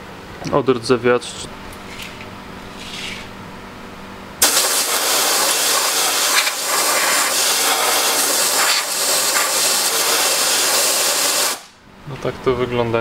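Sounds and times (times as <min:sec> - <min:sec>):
compressed air blow gun hissing: 0:04.4 - 0:11.8.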